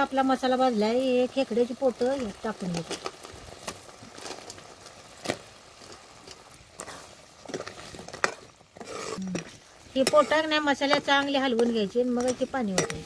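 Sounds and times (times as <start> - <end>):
curry bubbling in a pot: 0.0 - 13.0
ladle stirring: 2.8 - 13.0
metal ladle knocking pot: 10.0 - 13.0.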